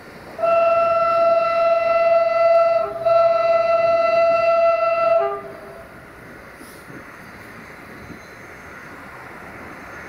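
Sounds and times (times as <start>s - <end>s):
locomotive horn blast: 0.4s - 5.9s.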